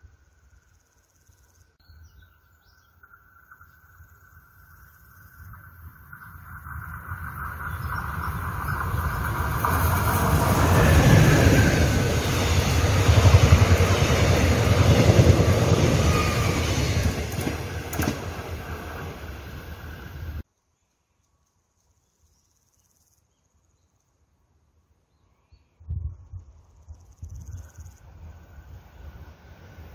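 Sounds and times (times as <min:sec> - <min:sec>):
passenger train passing: 0:03.0 - 0:20.4, 0:28.0 - 0:29.9.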